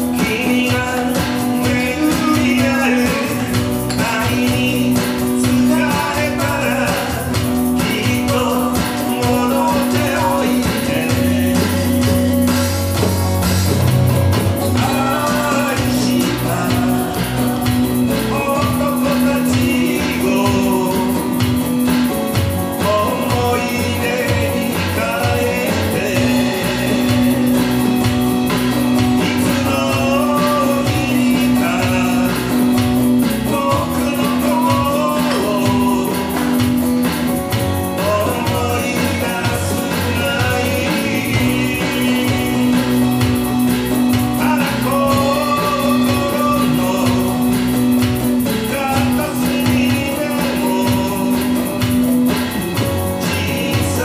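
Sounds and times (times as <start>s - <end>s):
electric guitar: 0.0s - 54.0s
electronic drum kit: 0.0s - 54.0s
man singing: 0.0s - 54.0s
strummed acoustic guitar: 0.0s - 54.0s.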